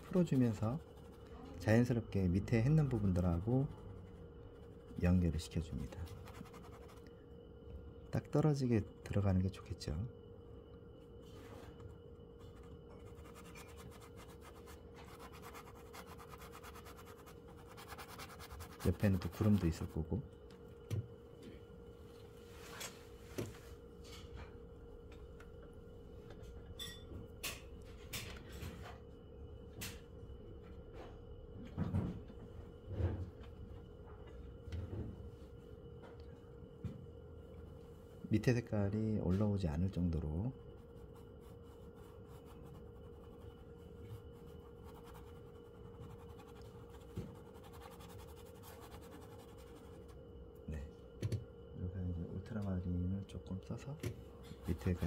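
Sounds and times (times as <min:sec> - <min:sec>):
steady low hum: 0:00.0 - 0:55.0
paint brush scrubbing on canvas: 0:13.0 - 0:19.6.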